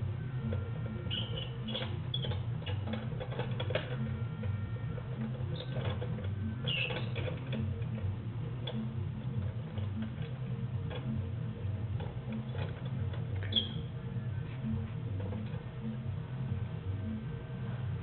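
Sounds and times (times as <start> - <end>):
rhythmic low rumble: 0.0 - 18.0
gears ticking and clattering: 0.4 - 16.8
brief squeak: 1.1 - 2.8, 6.6 - 7.3, 13.5 - 13.9.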